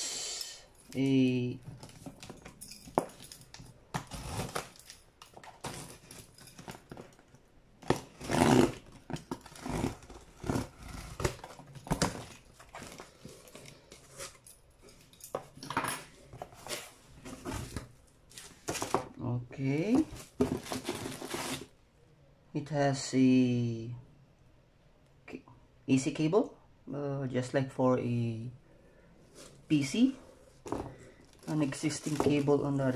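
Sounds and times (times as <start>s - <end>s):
cardboard box being opened: 20.0s - 21.7s.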